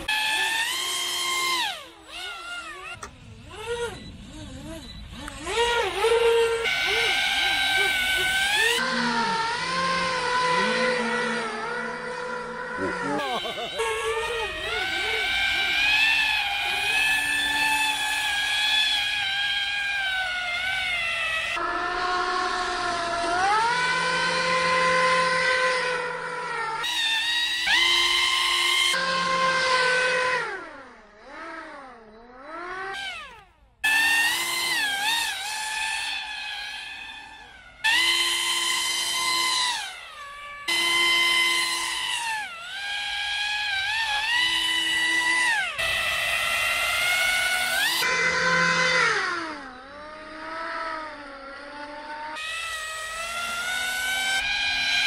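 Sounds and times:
electric motor whining: 0.0 - 55.0.

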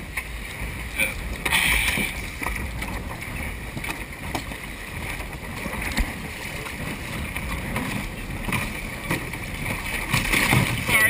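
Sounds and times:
low steady rumble: 0.0 - 11.0
water sloshing against boat hull: 0.0 - 11.0.

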